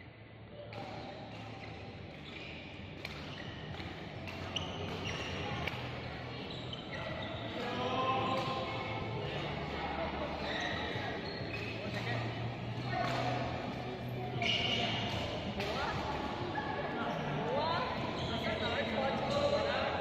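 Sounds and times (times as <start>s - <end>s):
shoe squeaks on court floor: 0.8s - 9.5s, 10.2s - 13.5s, 14.1s - 16.2s, 17.8s - 19.7s
racket hitting shuttlecock: 3.0s - 5.9s.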